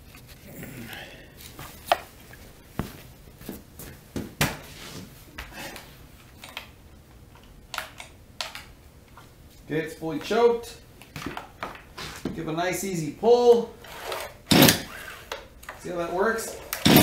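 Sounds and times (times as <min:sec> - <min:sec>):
footsteps on concrete floor: 0:01.4 - 0:05.5.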